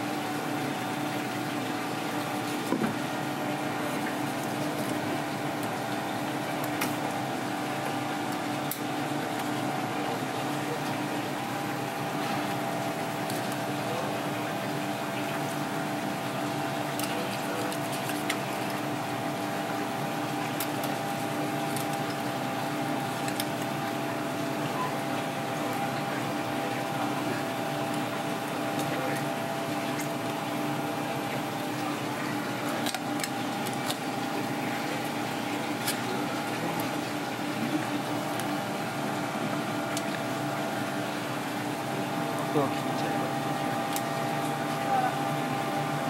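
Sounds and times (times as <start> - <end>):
kitchen hum and hiss: 0.0 - 46.0.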